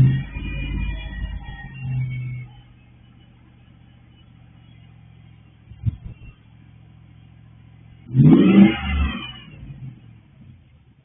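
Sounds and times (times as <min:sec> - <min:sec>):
engine revving: 0:00.0 - 0:02.8, 0:07.5 - 0:10.7
car engine idling burble: 0:00.0 - 0:08.7.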